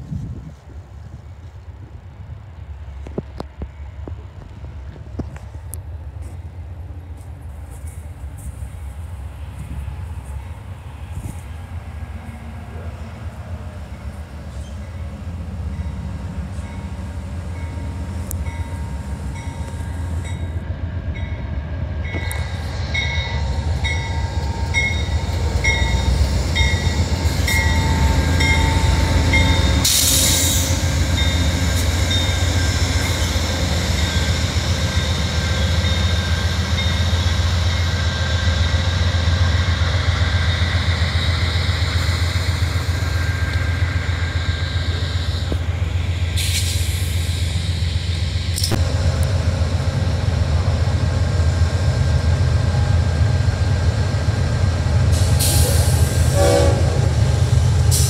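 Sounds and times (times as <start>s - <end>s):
diesel locomotive engine drone: 0.0s - 58.0s
locomotive bell ringing: 13.9s - 20.6s, 21.2s - 30.0s, 31.1s - 37.2s.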